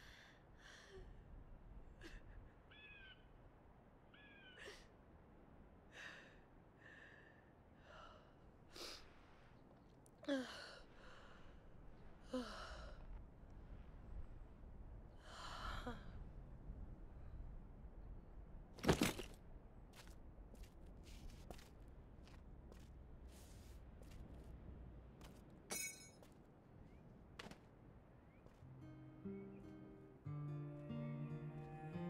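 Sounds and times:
girl sobbing: 0:10.3 - 0:10.8.

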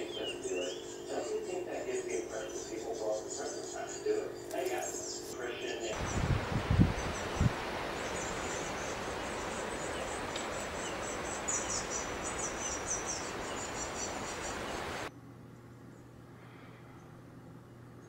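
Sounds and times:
nestlings begging chirps: 0:00.0 - 0:15.1
steady hiss: 0:03.4 - 0:15.1.

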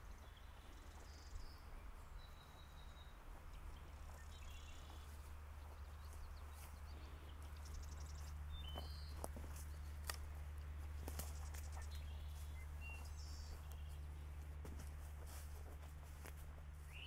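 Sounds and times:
high bird calls: 0:00.0 - 0:10.2
faint footsteps on trail: 0:00.0 - 0:17.0.

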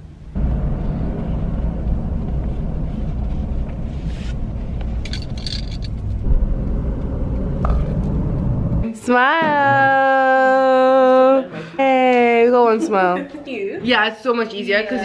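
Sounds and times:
road and engine rumble in car: 0:00.0 - 0:08.9
light rattles: 0:02.2 - 0:06.3.

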